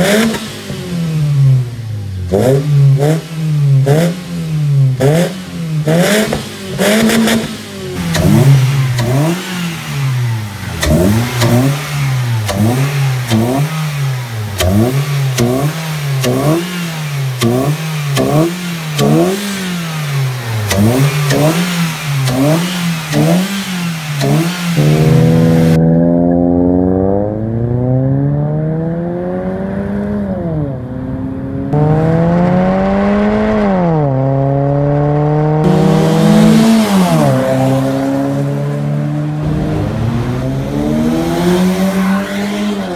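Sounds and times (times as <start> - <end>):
car accelerating with gear changes: 0.0 - 42.9
car engine revving: 0.0 - 42.9.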